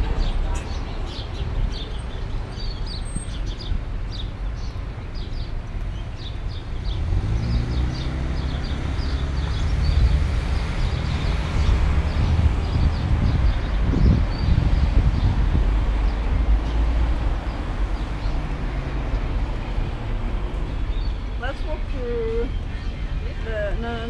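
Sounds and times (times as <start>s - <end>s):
small birds chirping: 0.0s - 24.0s
traffic rumble: 0.0s - 24.0s
vehicle engine approaching: 5.2s - 22.6s.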